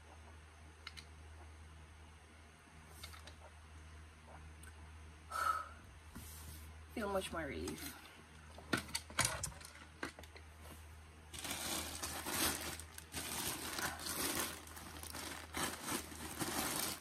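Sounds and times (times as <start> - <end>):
plastic bags rustling: 11.3 - 17.0.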